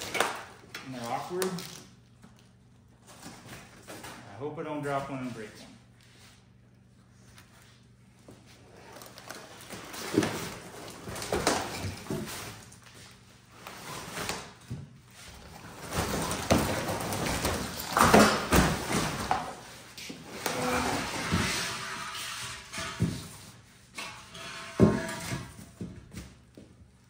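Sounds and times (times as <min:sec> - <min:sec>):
plastic wrap crinkling: 0:00.0 - 0:03.8.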